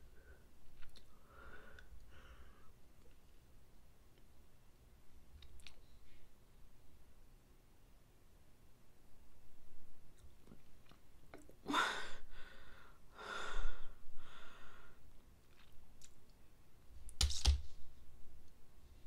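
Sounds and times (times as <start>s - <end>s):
mouth clicks and smacks: 0.8s - 1.1s, 5.3s - 5.9s
person breathing out hard: 1.2s - 2.8s, 11.7s - 15.0s.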